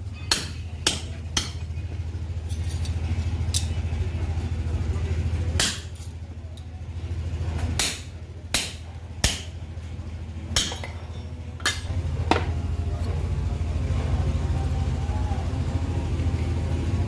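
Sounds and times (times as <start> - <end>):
hammer striking steel punch: 0.3 - 1.7, 5.6 - 6.1, 7.8 - 9.6, 10.6 - 11.0, 11.6 - 12.5.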